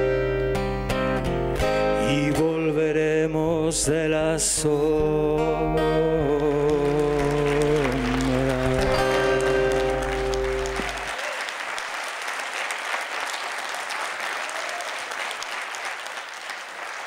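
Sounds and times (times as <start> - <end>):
song's held chord: 5.6 - 11.1
crowd applauding: 6.2 - 17.0.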